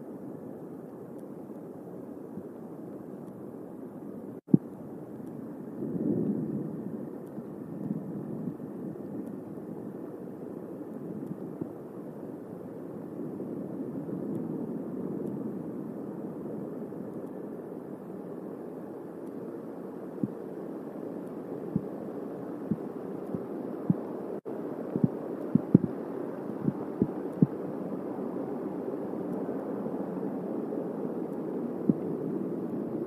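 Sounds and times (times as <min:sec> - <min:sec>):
steady rain: 0:00.0 - 0:33.0.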